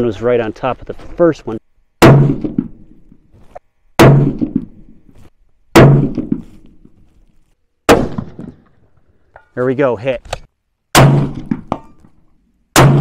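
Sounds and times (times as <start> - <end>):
rifle shots: 7.9 - 8.6.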